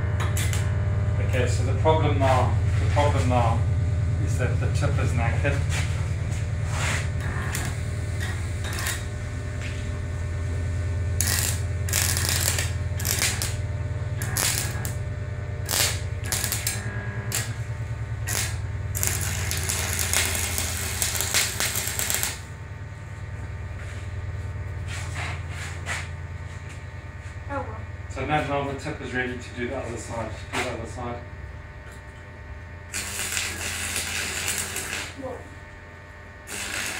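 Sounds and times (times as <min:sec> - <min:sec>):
welding arc crackling: 0:00.0 - 0:02.2, 0:04.2 - 0:22.6, 0:32.8 - 0:35.5, 0:36.3 - 0:36.9
stick welder humming: 0:00.0 - 0:36.9.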